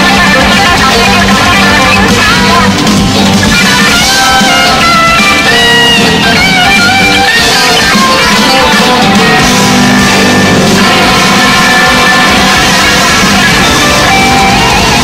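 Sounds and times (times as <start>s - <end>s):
blues rock band playing: 0.0s - 15.0s
electric guitar lead: 0.0s - 15.0s.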